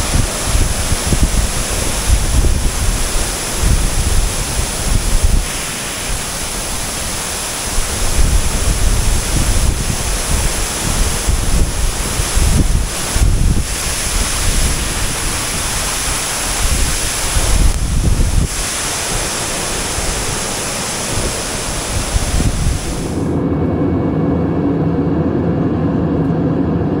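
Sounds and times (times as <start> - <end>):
waterfall rushing over rocks: 0.0 - 23.3
wind buffeting microphone: 0.0 - 27.0.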